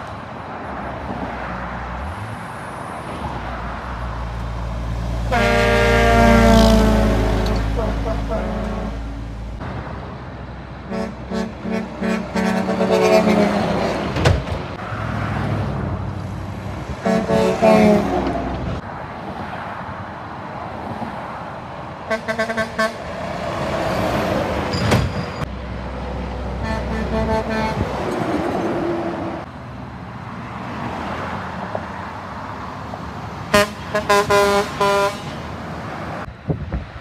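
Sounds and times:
trucks passing close by: 0:00.0 - 0:37.0
truck horn toots: 0:05.3 - 0:09.2, 0:10.9 - 0:14.0, 0:17.0 - 0:18.4, 0:22.1 - 0:23.1, 0:26.6 - 0:28.0, 0:33.5 - 0:35.4.

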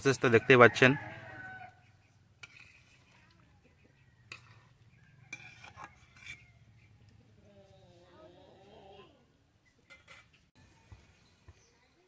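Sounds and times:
spoon stirring in pot: 0:02.4 - 0:06.8.

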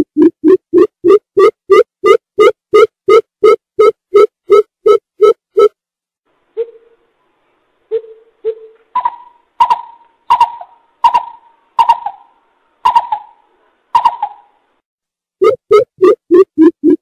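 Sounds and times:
bird hooting call: 0:06.6 - 0:07.0, 0:07.9 - 0:13.4, 0:14.0 - 0:14.6.

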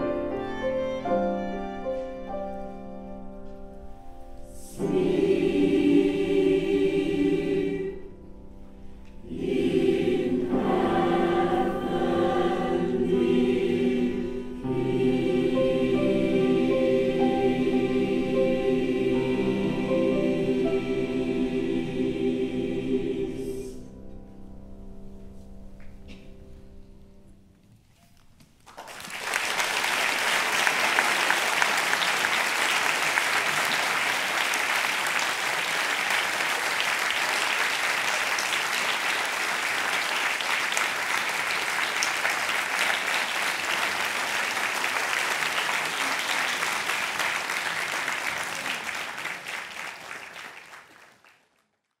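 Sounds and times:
choir holding a chord: 0:04.4 - 0:24.3
audience applause: 0:28.6 - 0:51.7.

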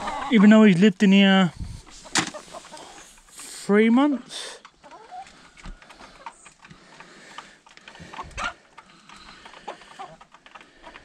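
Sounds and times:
faint chicken clucks: 0:00.0 - 0:00.6, 0:04.6 - 0:11.0
chickens tapping and scratching: 0:00.1 - 0:11.0.

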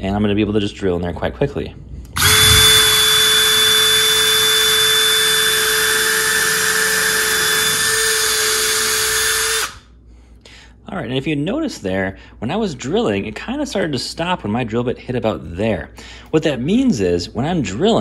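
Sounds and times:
cordless drill whining: 0:02.2 - 0:09.8
drill bit cutting wood: 0:02.2 - 0:09.8.

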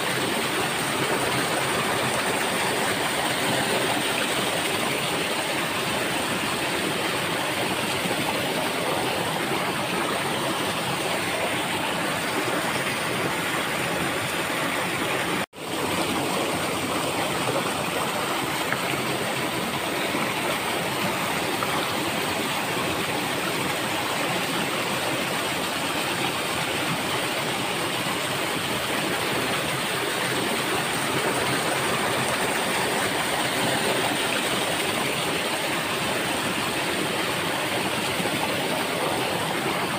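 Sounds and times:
stream water pouring over rocks: 0:00.0 - 0:39.9.

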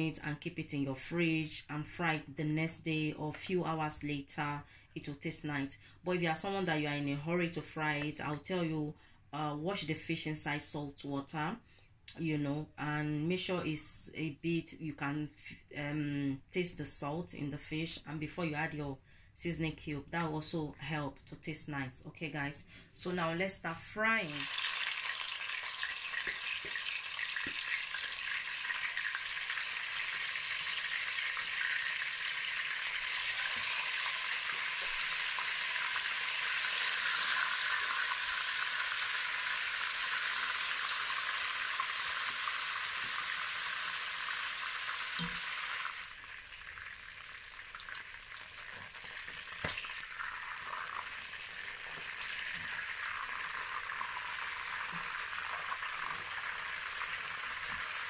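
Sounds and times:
fish deep-frying in oil: 0:24.2 - 0:58.0.

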